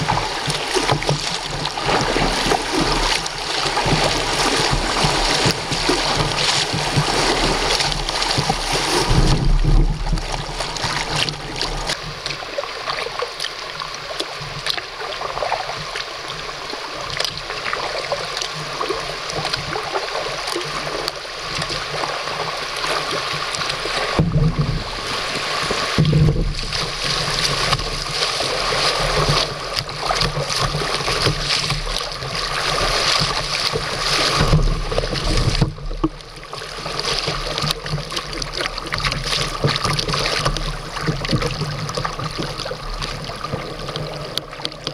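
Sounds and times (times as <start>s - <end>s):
low kayak bumps: 0.0s - 12.1s, 23.9s - 44.9s
river water rushing and splashing: 0.0s - 44.9s.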